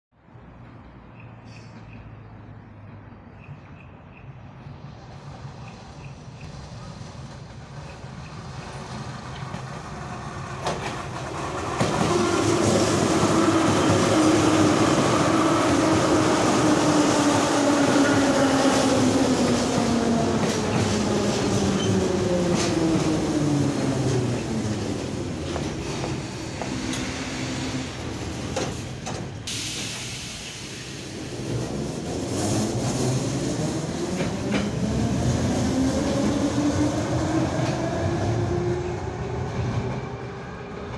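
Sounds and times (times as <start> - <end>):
wheel and rail rumble: 4.6 - 40.9
train motor whine: 25.4 - 29.8.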